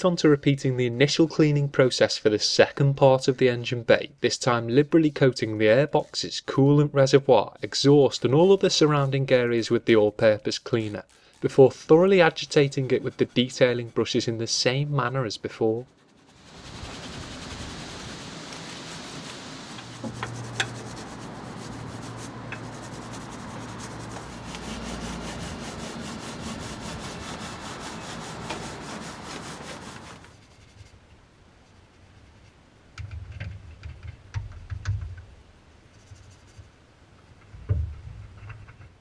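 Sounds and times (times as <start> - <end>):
brush scrubbing wet plastic: 4.7 - 30.8.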